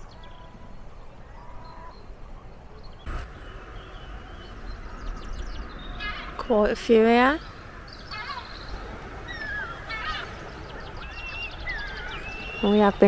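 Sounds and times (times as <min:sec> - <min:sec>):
faint bird calls: 0:00.0 - 0:13.0
wind rumble on microphone: 0:03.0 - 0:13.0.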